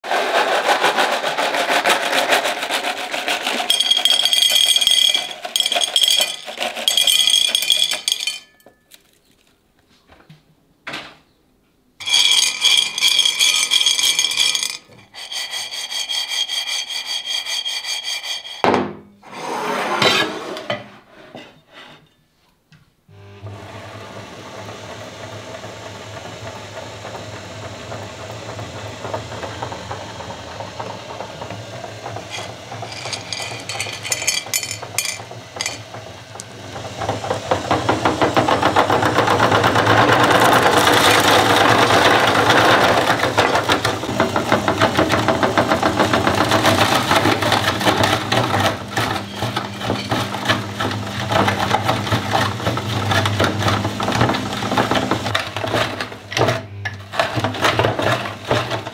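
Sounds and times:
candy cracking in grinder: 0.0 - 9.5, 12.0 - 15.4, 26.2 - 58.9
meat grinder motor hum: 23.1 - 58.9.

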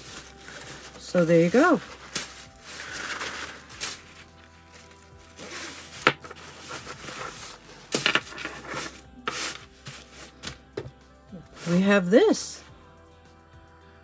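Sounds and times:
rhinestones rustling: 0.0 - 10.7
faint background music: 0.0 - 14.0.

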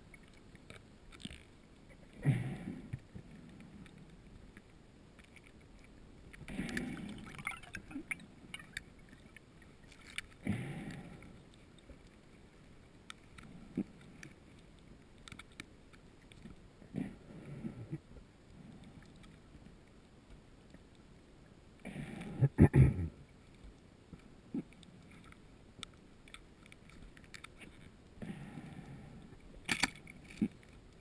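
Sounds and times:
faint clicks: 0.0 - 22.3, 23.3 - 31.0
underwater breath bubbling: 6.5 - 8.8.

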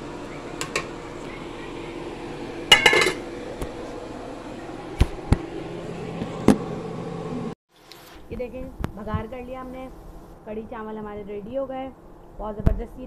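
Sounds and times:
metal ladle clinking on pot: 2.7 - 3.2.

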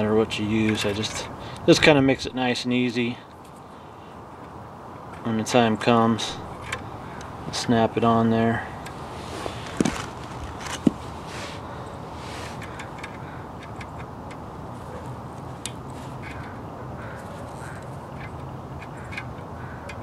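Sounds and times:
steady background hiss: 0.0 - 20.0
wire strippers clicking: 12.5 - 20.0.

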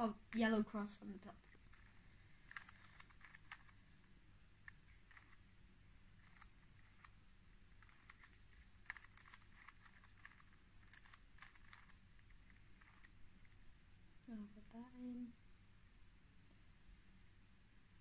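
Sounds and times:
puzzle cube plastic clicks: 1.4 - 5.4, 6.2 - 13.2.

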